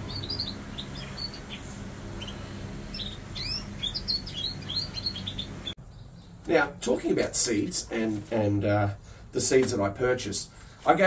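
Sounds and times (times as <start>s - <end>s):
canaries chirping: 0.0s - 6.4s
low steady hum: 0.0s - 9.4s.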